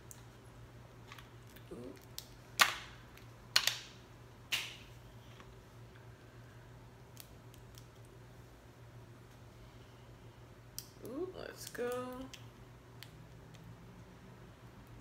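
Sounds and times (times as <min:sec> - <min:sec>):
crawfish shell cracking: 0:07.0 - 0:08.2.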